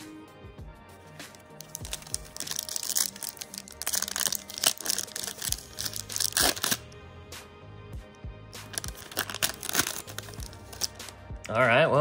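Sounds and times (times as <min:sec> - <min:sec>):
background music: 0:00.0 - 0:12.0
foil wrapper crinkling and tearing: 0:01.3 - 0:06.9, 0:08.6 - 0:11.1.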